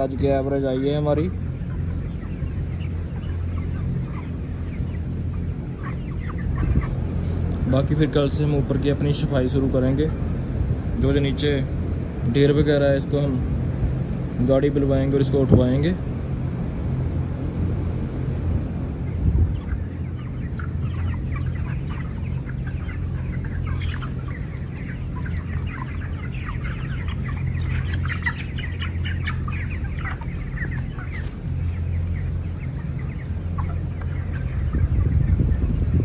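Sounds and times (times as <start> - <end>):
chickens clucking and calling: 0.0 - 36.0
exhaust fans humming: 0.0 - 36.0.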